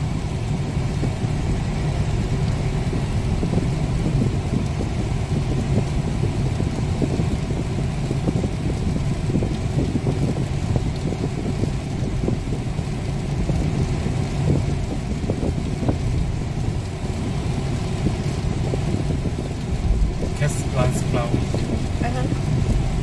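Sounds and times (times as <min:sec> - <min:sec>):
car engine and tyre rumble: 0:00.0 - 0:23.0.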